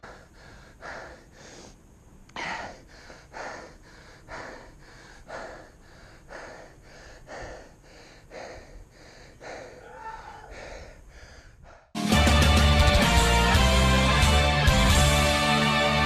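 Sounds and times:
person breathing hard: 0.0s - 12.0s.

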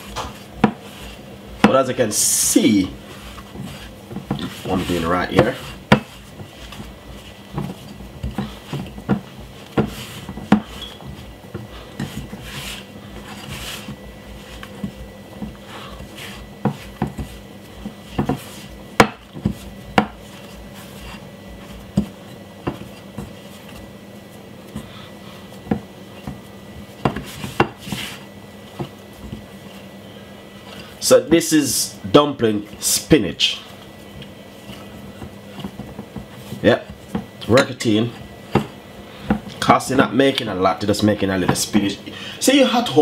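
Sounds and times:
soft rubbing of dough: 0.0s - 43.0s
dough knocking against glass bowl: 5.3s - 12.4s, 16.6s - 20.2s.

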